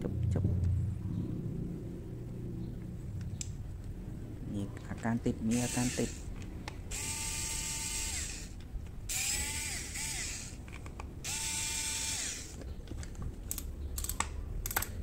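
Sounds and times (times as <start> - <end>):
electric screwdriver whining: 5.5 - 6.2, 6.9 - 10.6, 11.2 - 12.6
small metal parts clicking: 13.0 - 15.0.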